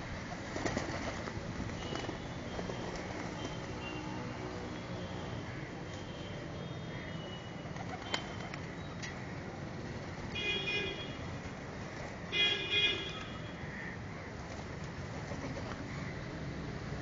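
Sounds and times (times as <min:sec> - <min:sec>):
traffic rumble: 0:00.0 - 0:17.0
vehicle horn honking: 0:10.4 - 0:11.2, 0:12.4 - 0:13.5.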